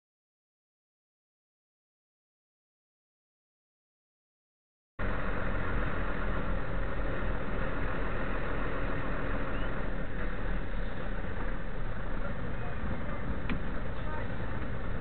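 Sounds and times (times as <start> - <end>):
car engine and road noise: 5.0 - 15.0.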